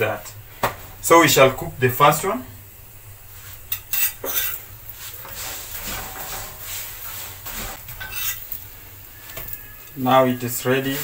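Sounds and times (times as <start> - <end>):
low steady hum: 0.0 - 11.0
metal spoon scraping a hot pan: 3.6 - 10.0.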